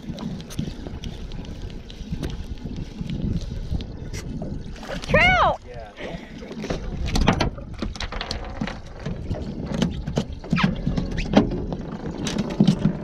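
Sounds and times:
low wind rumble: 0.0s - 13.0s
water slapping boat hull: 0.0s - 13.0s
sharp knocks and clicks on boat: 6.5s - 13.0s.

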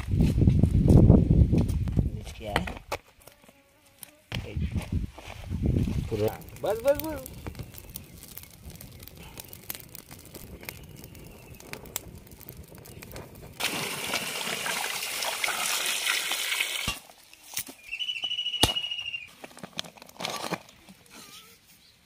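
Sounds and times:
twig fire crackling: 0.0s - 21.9s
water splashing and sloshing in pot: 13.6s - 17.0s.

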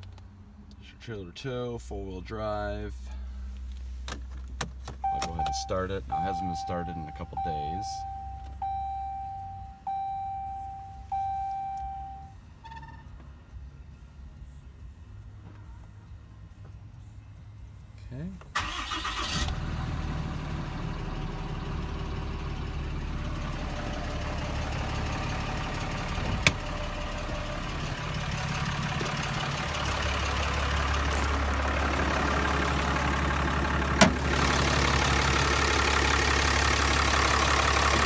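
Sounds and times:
diesel truck engine idling: 5.0s - 12.3s, 18.5s - 38.0s.

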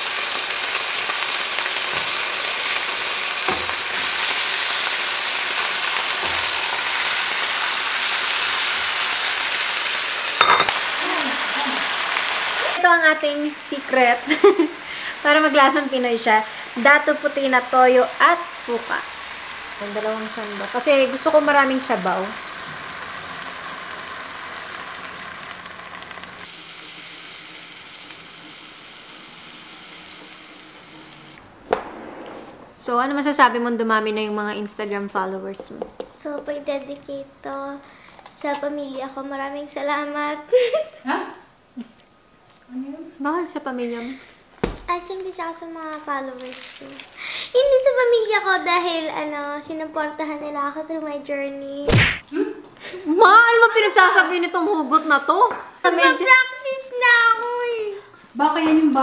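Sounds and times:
sizzling in a frying pan: 0.0s - 31.4s, 36.1s - 40.5s, 44.9s - 51.8s.

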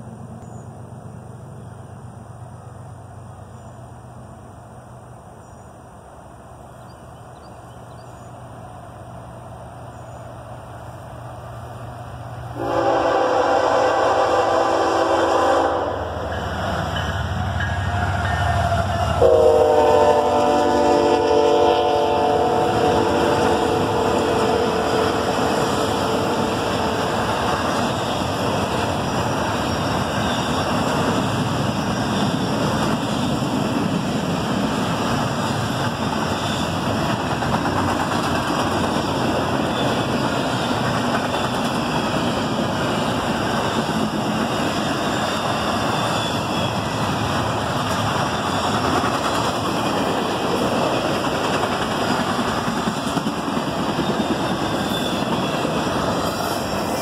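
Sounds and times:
freight train wheels rumbling on rail: 0.0s - 57.0s
train horn: 12.5s - 16.4s, 17.6s - 28.2s.

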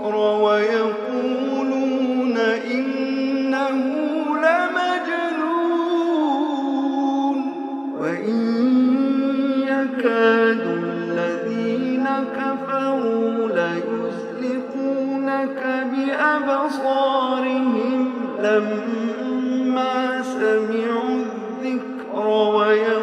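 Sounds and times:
man chanting melodically: 0.0s - 23.0s.

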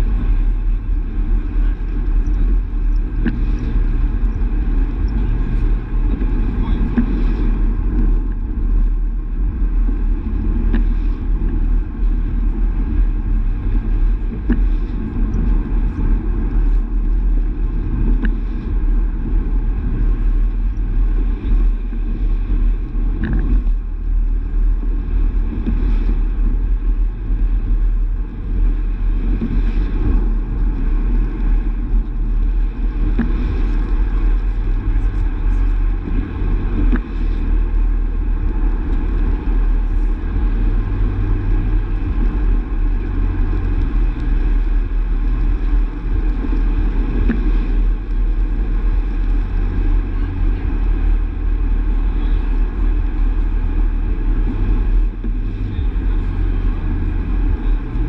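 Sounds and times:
car engine and tyre noise: 0.0s - 58.0s
faint ticks: 22.9s - 23.8s.

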